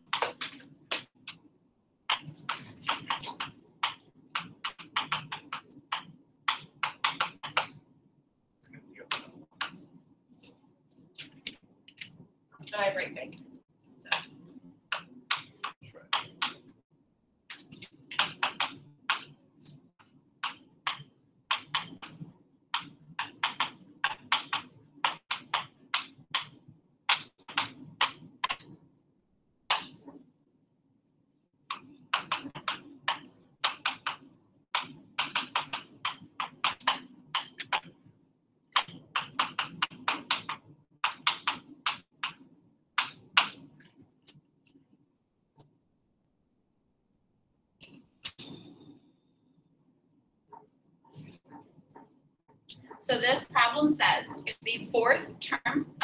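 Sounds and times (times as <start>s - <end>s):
writing on a board: 2.1s - 7.8s, 17.6s - 28.8s, 31.7s - 38.1s, 38.8s - 44.8s, 50.5s - 52.2s.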